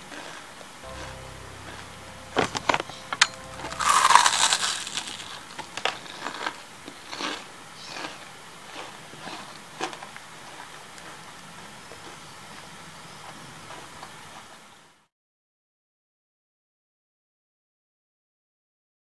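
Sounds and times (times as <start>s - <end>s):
fried batter crunching and crackling: 3.7s - 5.5s.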